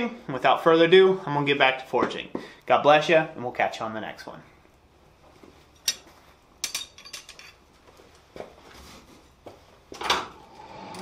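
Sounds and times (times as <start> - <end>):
metal tools clinking: 5.7 - 7.6.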